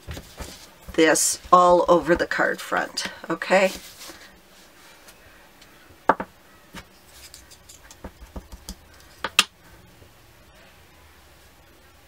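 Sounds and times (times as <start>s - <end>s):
paper rustling: 0.0s - 2.3s, 3.5s - 4.3s.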